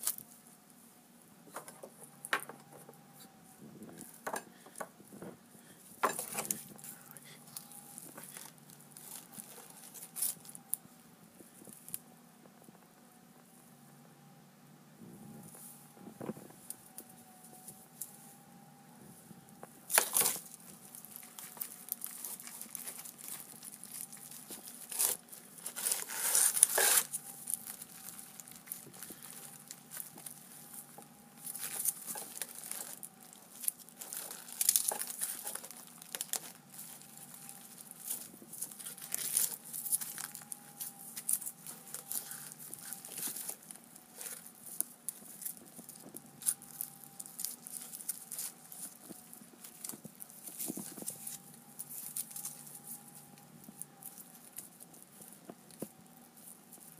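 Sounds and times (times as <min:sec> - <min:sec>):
aluminium foil crinkling: 0:00.0 - 0:00.5, 0:05.6 - 0:12.1, 0:19.6 - 0:56.9.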